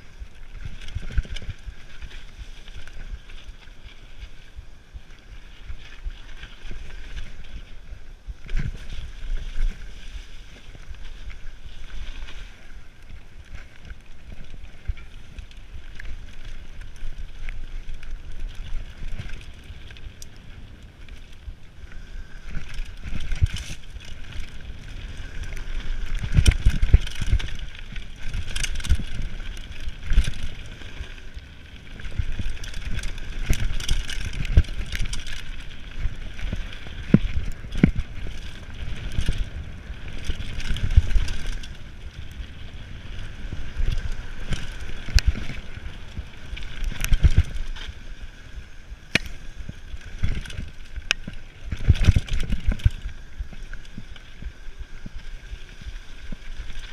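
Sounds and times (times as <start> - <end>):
bike tyre rumble on dirt: 0.0 - 56.9
wind noise on microphone: 0.0 - 56.9
bike knocks and rattles: 22.4 - 31.1, 43.3 - 48.0, 50.1 - 54.1.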